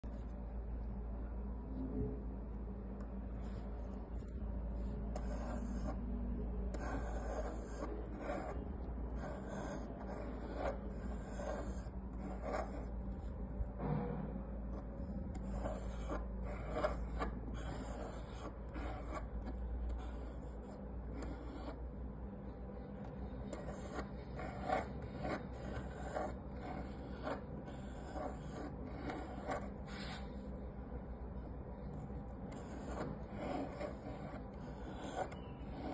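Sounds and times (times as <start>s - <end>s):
steady low hum: 0.0s - 35.9s
pencil scratching on wood: 3.4s - 6.0s, 6.7s - 13.4s, 14.7s - 21.9s, 23.0s - 30.5s, 31.8s - 35.9s.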